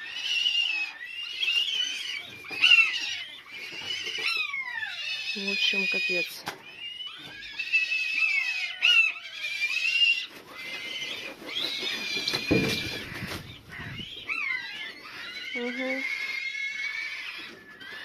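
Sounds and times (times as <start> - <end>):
buzzards whistling squeals: 0.0 - 18.0
wings flapping: 10.3 - 14.4.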